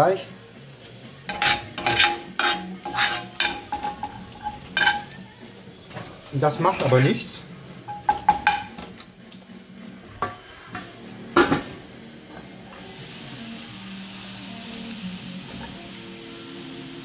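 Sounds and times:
sausages sizzling in a frying pan: 0.0 - 17.0
metal pan lid clank: 1.3 - 5.1, 7.9 - 8.9.

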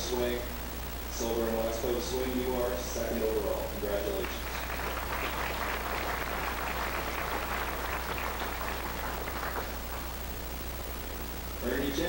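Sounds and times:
low constant hum: 0.0 - 12.0
audience applauding: 4.0 - 10.4.

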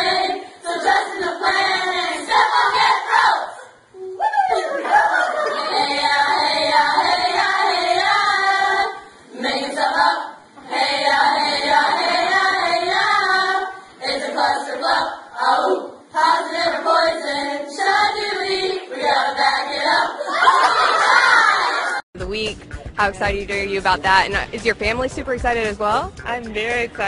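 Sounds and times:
young women singing together: 0.0 - 3.9, 4.5 - 22.0.

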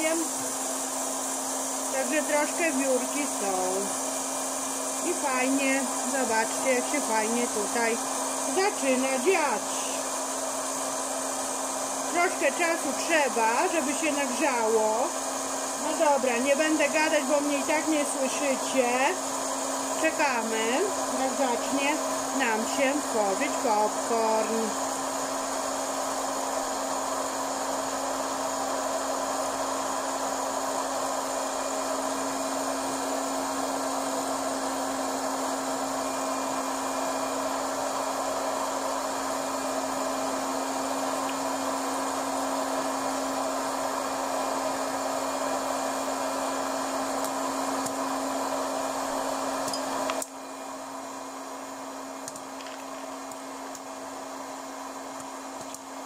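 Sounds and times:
popcorn maker fan hum: 0.0 - 56.0.

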